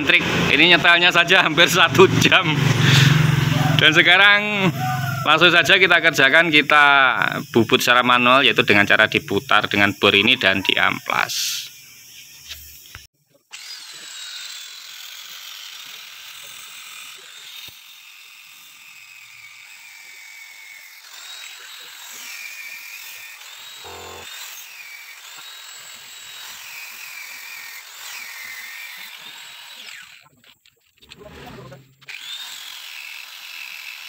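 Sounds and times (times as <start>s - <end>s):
angle grinder sanding metal: 2.8s - 30.3s, 31.6s - 34.0s
electric drill whining: 12.0s - 30.3s, 32.0s - 34.0s.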